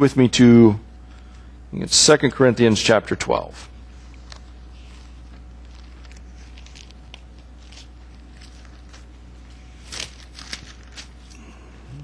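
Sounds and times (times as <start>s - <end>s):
book pages turning: 4.0s - 11.4s.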